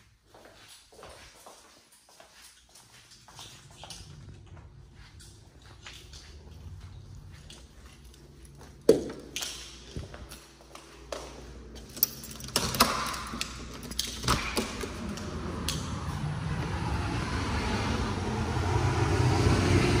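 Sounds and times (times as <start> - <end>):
steady rushing noise: 15.0 - 20.0.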